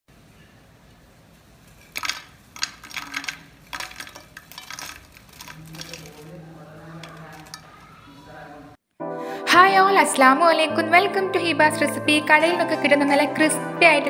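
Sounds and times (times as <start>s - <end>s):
fries clattering onto ceramic plate: 1.7s - 7.8s.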